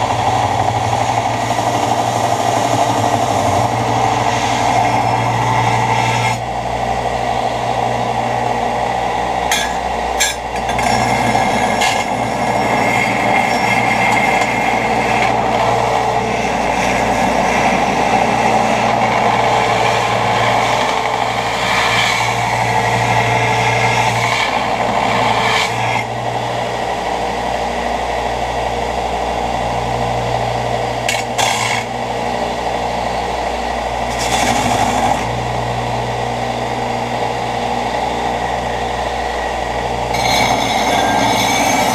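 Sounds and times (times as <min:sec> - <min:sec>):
belt grinding steel: 0:09.4 - 0:26.3, 0:34.0 - 0:35.4, 0:39.3 - 0:41.9
belt grinder motor humming: 0:34.0 - 0:35.7, 0:39.2 - 0:41.9.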